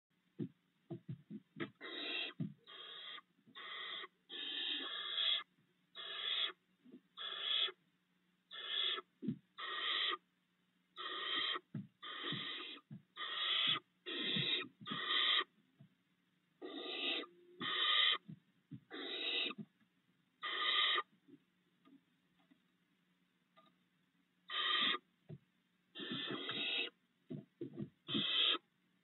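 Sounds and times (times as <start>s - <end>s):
short low thumps: 0.4s - 1.8s.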